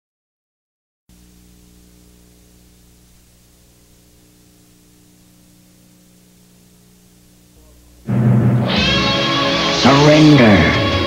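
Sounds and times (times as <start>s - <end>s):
low electrical hum: 1.1s - 8.8s
faint steady hiss: 1.1s - 11.0s.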